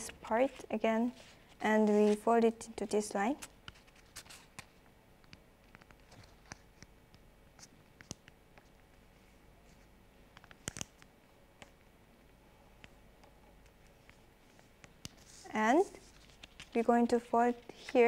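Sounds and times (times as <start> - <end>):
paper being folded and creased: 13.8 - 18.0.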